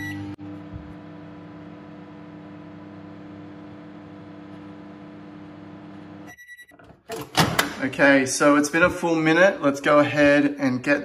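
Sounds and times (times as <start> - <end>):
microwave oven humming: 0.0 - 11.0.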